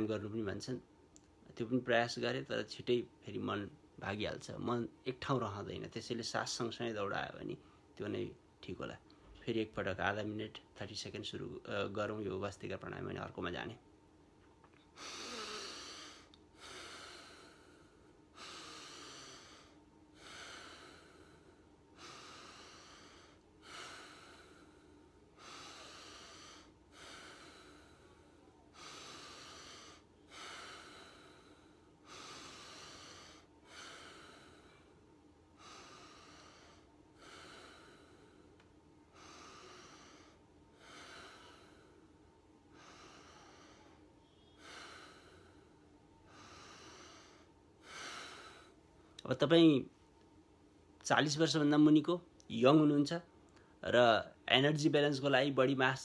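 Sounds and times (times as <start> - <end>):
man breathing forcefully through nose: 14.9 - 48.9.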